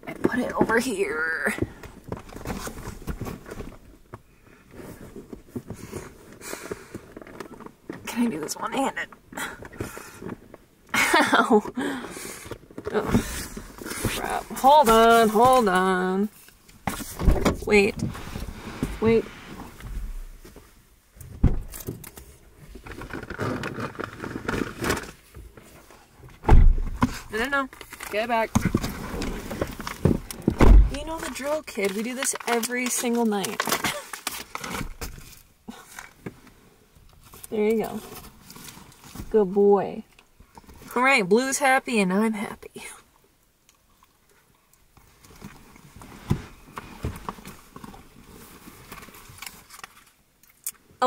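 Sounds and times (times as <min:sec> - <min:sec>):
clicks and rustling: 0:19.7 - 0:36.4.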